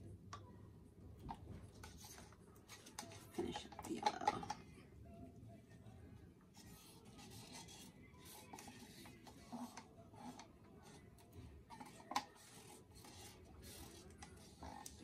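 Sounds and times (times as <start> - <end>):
gloved hands rubbing plastic cup: 6.6 - 11.1.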